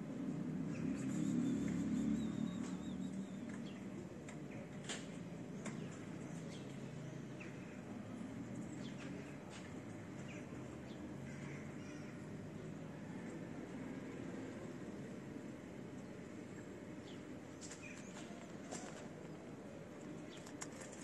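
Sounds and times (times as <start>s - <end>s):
bird chirps: 0.8s - 3.8s.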